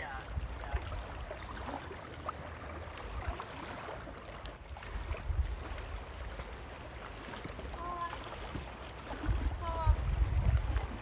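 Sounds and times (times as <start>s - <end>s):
wind buffeting microphone: 0.0s - 1.9s, 4.6s - 6.6s, 7.6s - 11.0s
faint water wash: 0.0s - 11.0s.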